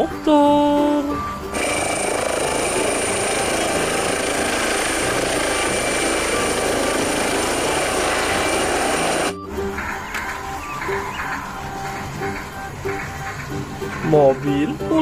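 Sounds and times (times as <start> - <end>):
high whine: 1.4 - 14.0
helicopter rotor and turbine: 1.5 - 9.3.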